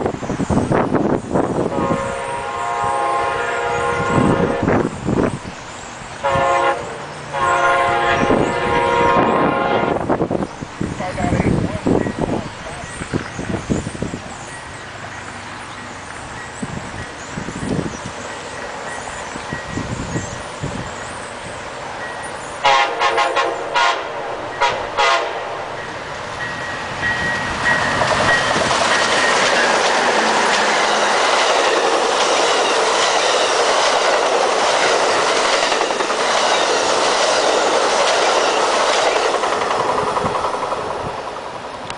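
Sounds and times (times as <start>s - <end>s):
train wheel and rail rush: 0.0s - 41.9s
train horn blasts: 1.6s - 4.9s, 6.2s - 10.1s, 22.6s - 25.6s.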